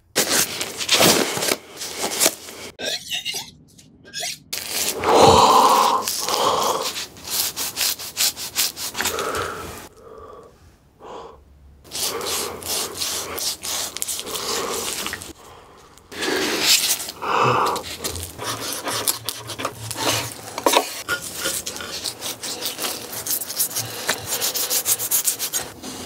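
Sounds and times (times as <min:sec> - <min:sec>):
raw meat squishing against gloves: 0:11.9 - 0:15.4, 0:16.4 - 0:25.7.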